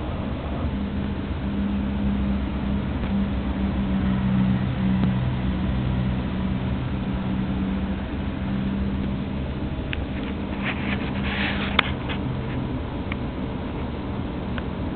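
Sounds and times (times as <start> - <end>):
rustling against fur: 10.0 - 12.8.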